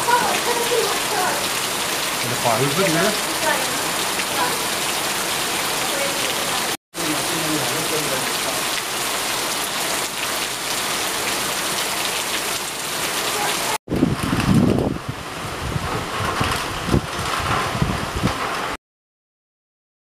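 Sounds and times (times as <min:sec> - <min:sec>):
steady rain hiss: 0:00.0 - 0:13.8.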